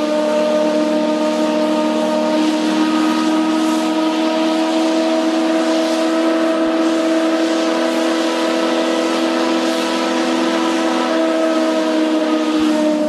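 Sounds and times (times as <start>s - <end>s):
steam escaping: 0.0s - 13.0s
steam whistle chord blast: 0.0s - 13.0s.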